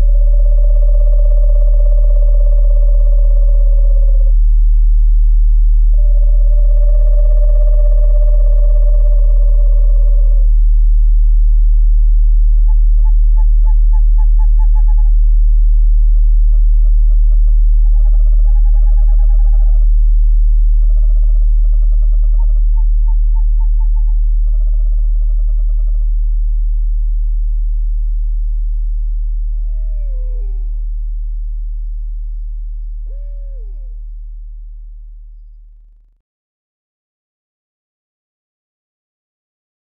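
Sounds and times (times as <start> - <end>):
owl calls: 0.0 - 4.4, 6.0 - 10.5, 12.6 - 15.2, 16.2 - 19.9, 20.8 - 26.1, 29.4 - 30.9, 32.8 - 34.1
low drone tone: 0.0 - 36.1.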